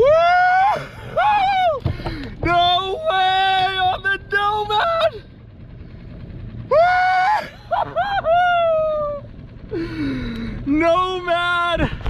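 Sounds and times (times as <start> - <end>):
man whooping and yelling: 0.0 - 1.8, 2.4 - 5.2, 6.7 - 9.3, 10.7 - 11.9
wind and water noise: 0.0 - 12.0.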